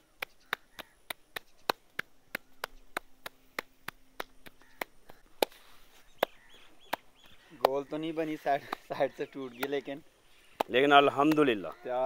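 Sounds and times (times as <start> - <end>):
dough slapped between palms: 0.0 - 7.9, 10.6 - 11.8.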